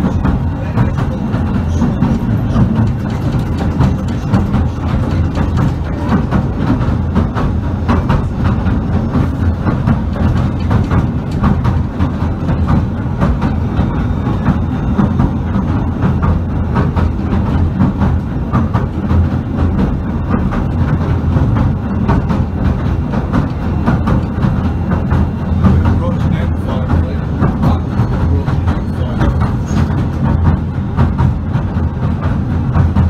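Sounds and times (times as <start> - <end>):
train rumble inside carriage: 0.0 - 33.0
wheels clattering on rails: 0.0 - 33.0.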